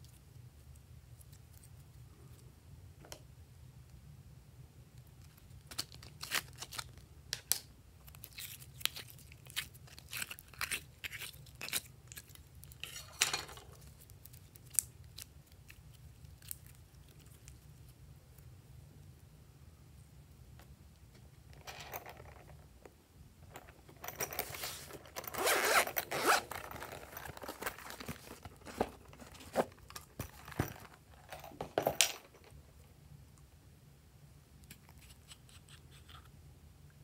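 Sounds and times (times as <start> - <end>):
zipper being pulled open: 24.4 - 27.6.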